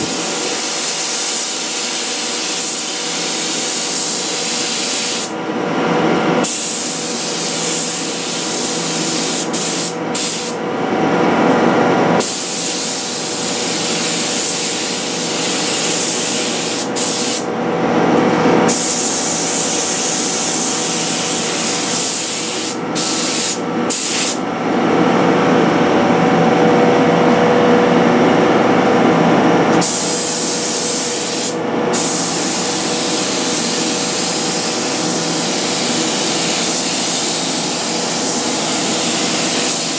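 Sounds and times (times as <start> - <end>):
paint sprayer hissing: 0.0 - 5.3, 6.4 - 10.6, 12.2 - 17.5, 18.7 - 24.4, 29.8 - 39.9
steady machine hum: 0.0 - 39.9.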